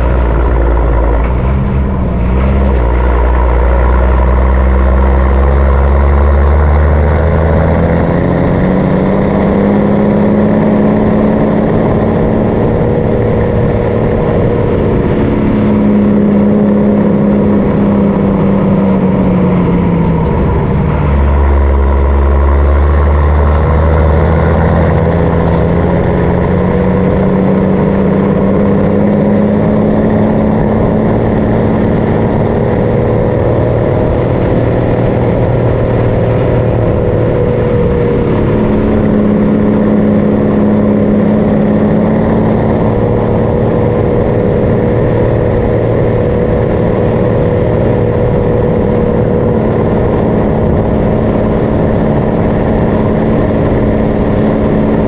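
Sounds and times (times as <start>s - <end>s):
truck diesel engine running: 0.0s - 55.0s.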